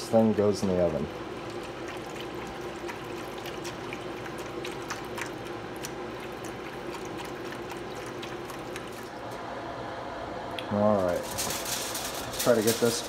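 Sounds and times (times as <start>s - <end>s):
small splashing ticks: 1.4s - 9.1s
liquid pouring into metal pan: 1.4s - 9.2s.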